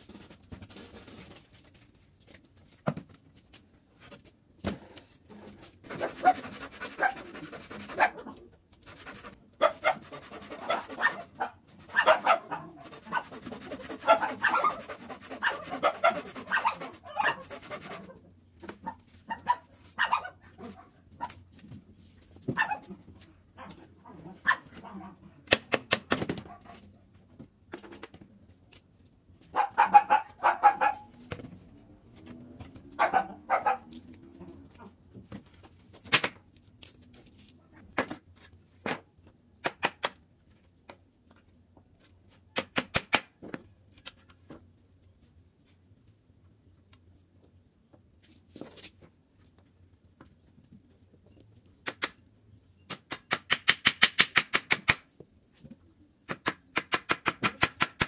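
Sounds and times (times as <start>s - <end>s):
small dog barking and whining: 10.6s - 13.2s, 14.0s - 14.8s, 15.4s - 17.5s, 18.8s - 21.3s, 22.6s - 23.0s, 23.6s - 25.2s, 29.6s - 31.2s, 33.0s - 33.9s.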